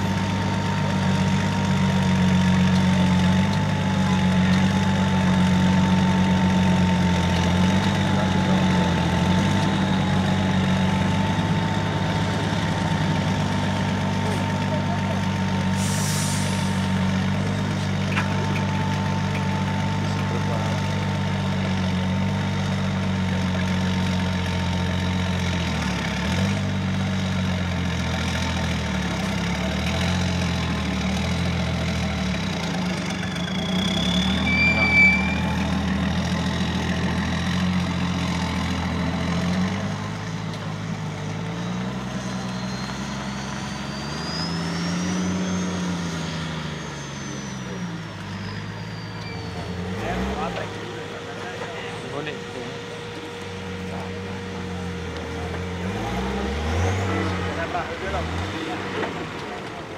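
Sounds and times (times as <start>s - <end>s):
truck engine at low revs: 0.0s - 59.9s
brief high squeal: 33.2s - 35.8s, 42.2s - 49.9s.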